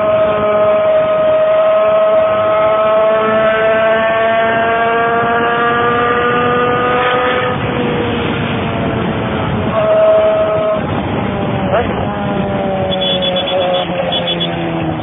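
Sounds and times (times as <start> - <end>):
vehicle rumble: 0.0 - 15.0
two-tone siren signal: 12.8 - 15.0.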